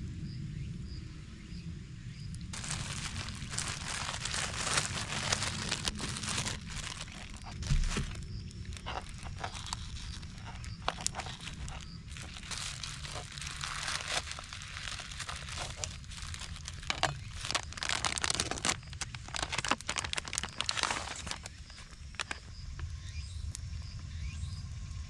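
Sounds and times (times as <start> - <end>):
plastic bag crinkling: 2.5 - 22.4
plastic food package crinkling: 2.5 - 22.5.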